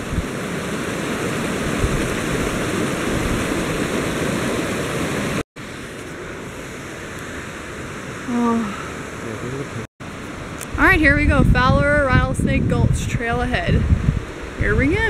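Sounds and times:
creek rushing over boulders: 0.0s - 10.6s.

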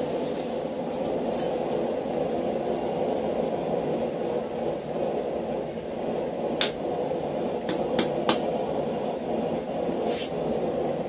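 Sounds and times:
hammer striking hot steel: 6.6s - 6.8s, 7.6s - 8.6s.

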